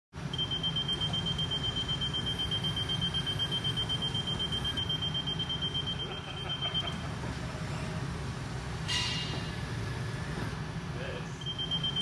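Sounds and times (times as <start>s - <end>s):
high alarm tone: 0.3s - 7.1s, 11.4s - 12.0s.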